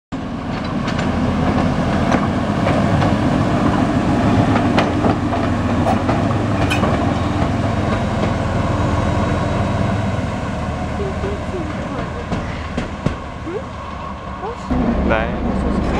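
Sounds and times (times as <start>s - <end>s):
diesel locomotive engine running: 0.2s - 15.9s
wheels clicking over rail joints: 0.4s - 3.8s, 4.4s - 8.8s, 10.9s - 14.7s.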